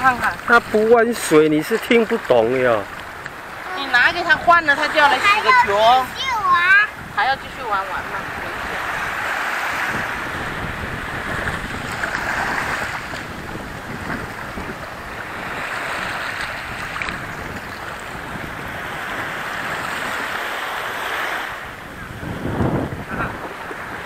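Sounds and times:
small waves washing on sand: 0:00.0 - 0:24.0
wind buffeting microphone: 0:00.0 - 0:24.0.

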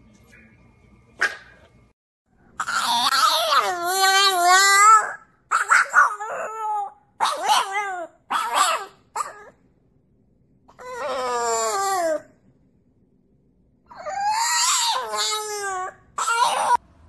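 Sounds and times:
dog howling: 0:02.6 - 0:09.6, 0:10.7 - 0:12.3, 0:13.9 - 0:16.8.

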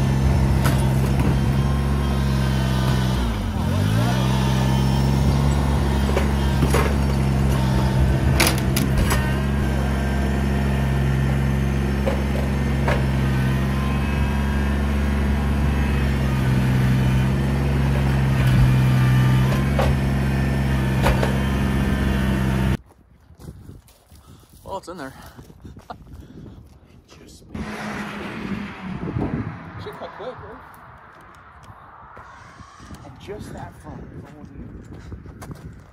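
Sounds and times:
tractor diesel engine running: 0:00.0 - 0:22.8
metal knocks and clanks: 0:05.3 - 0:09.4.

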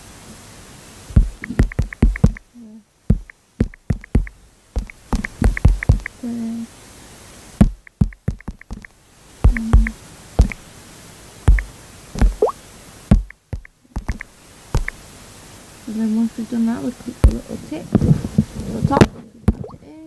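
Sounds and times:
touchscreen typing clicks: 0:01.2 - 0:02.4, 0:03.1 - 0:06.2, 0:07.9 - 0:08.9, 0:09.5 - 0:10.6, 0:11.5 - 0:12.5, 0:13.1 - 0:15.0.

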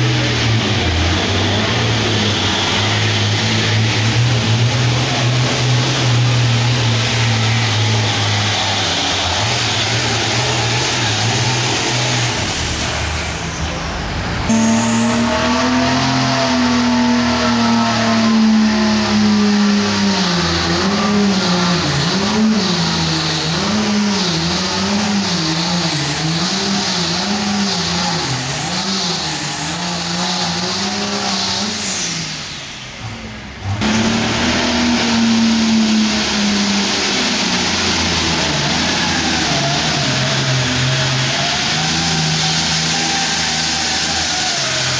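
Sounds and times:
diesel tractor engine revving: 0:00.0 - 0:44.9
turbo whistle: 0:14.5 - 0:18.8.

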